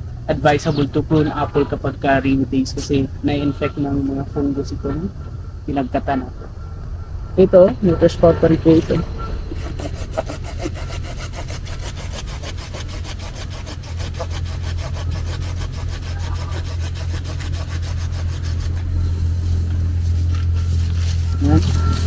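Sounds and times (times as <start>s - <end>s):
steady low hum: 0.0s - 22.0s
hand saw cutting wood: 9.5s - 18.9s.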